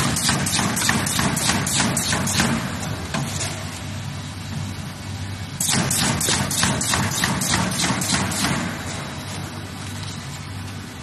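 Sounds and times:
machine clacking: 0.0 - 2.6, 5.6 - 8.8.

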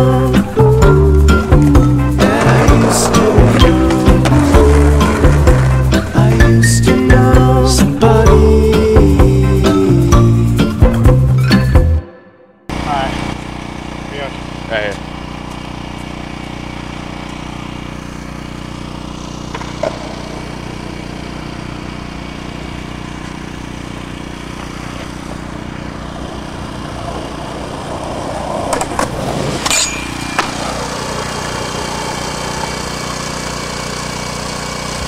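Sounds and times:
small engine drone: 0.0 - 11.7, 12.7 - 35.0.

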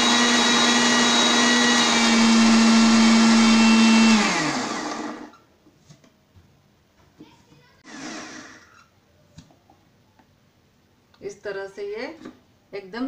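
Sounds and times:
mixer grinder motor whine: 0.0 - 5.4, 7.8 - 8.7.

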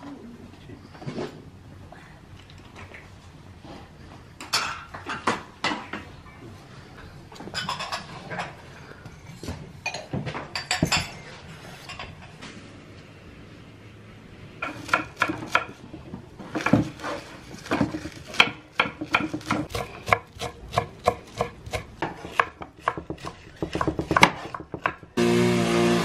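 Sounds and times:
knife chopping on wooden board: 17.7 - 25.0
string trimmer engine: 25.2 - 26.0.

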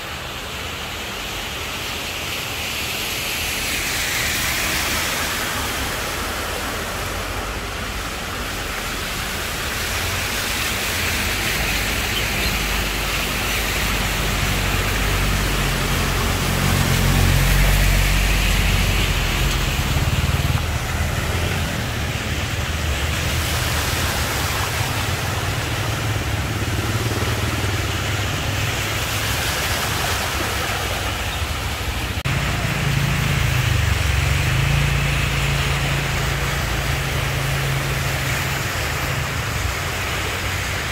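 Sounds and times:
tyres splashing through water: 0.0 - 40.9
vehicle engines humming: 0.0 - 40.9.

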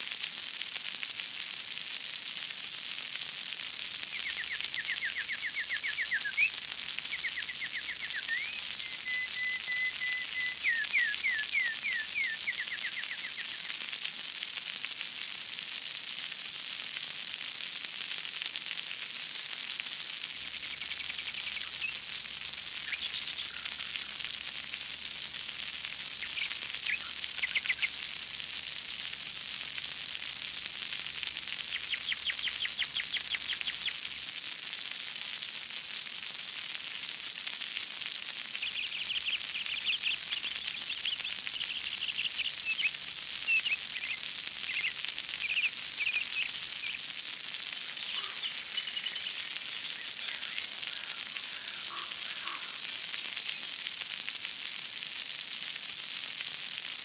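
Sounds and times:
splashing water hiss: 0.0 - 57.0
bird chirps and trills: 4.2 - 6.5, 7.1 - 13.7, 22.8 - 24.1, 48.0 - 53.7.

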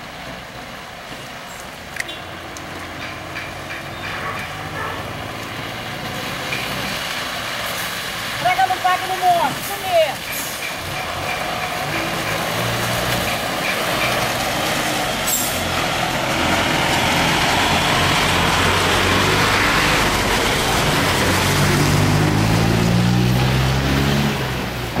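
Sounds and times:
bus engine passing: 0.0 - 25.0.

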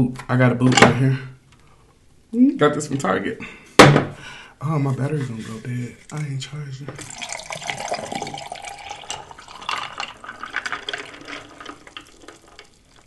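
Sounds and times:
drink pouring over ice: 7.0 - 13.0
ice clicking: 7.0 - 13.0.

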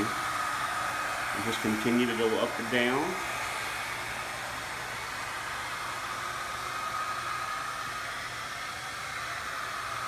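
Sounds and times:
faint steady whine: 0.0 - 10.0
hair dryer blowing air: 0.0 - 10.0.

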